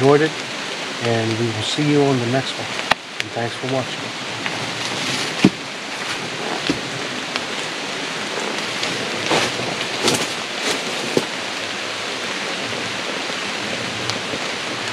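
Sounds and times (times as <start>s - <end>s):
raindrops ticking on surfaces: 0.0s - 14.9s
steady rain hiss: 0.0s - 14.9s.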